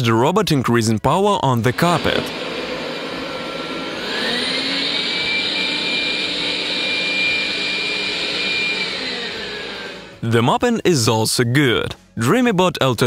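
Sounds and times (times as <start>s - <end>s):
robot vacuum fan whine: 1.6s - 10.2s.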